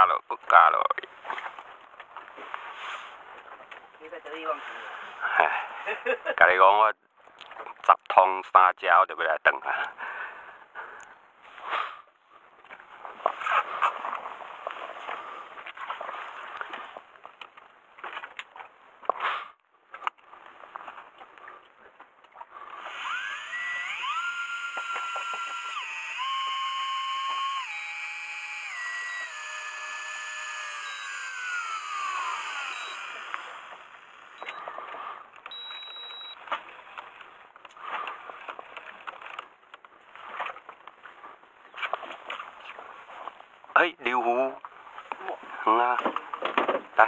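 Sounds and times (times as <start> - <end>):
small electric motor whine: 22.7 - 34.8, 35.5 - 36.4.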